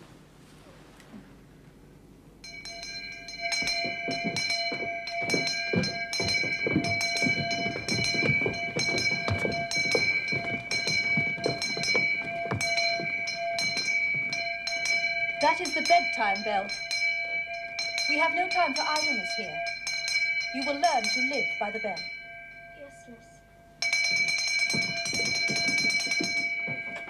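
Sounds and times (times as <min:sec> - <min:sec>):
handbell clanging: 0:02.4 - 0:27.0.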